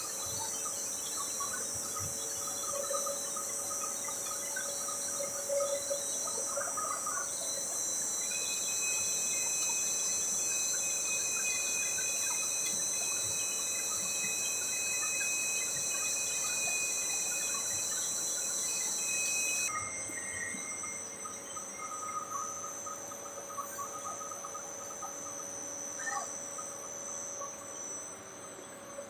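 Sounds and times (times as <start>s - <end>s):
high-pitched machine whine: 0.0s - 29.0s
low machine noise: 0.0s - 29.0s.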